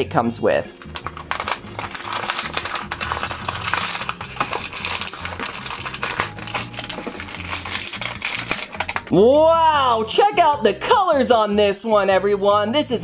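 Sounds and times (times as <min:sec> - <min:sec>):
plastic blister crinkling: 0:00.7 - 0:09.2
cardboard ripping: 0:00.8 - 0:09.2.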